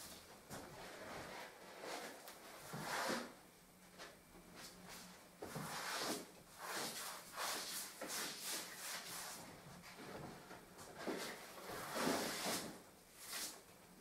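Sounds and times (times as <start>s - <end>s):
brush swishing across paper: 4.9s - 9.4s.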